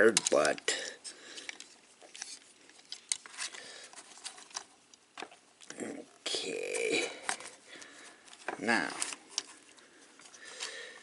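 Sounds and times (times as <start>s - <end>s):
scratchy handling noise: 0.0s - 5.4s
plastic toy parts clicking: 0.1s - 0.6s.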